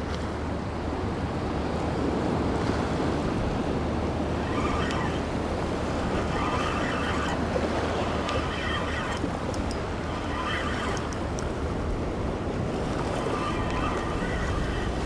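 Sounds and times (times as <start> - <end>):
wind buffeting microphone: 0.0 - 15.0
sea waves washing against rocks: 2.0 - 15.0
high-pitched whirring: 4.1 - 15.0.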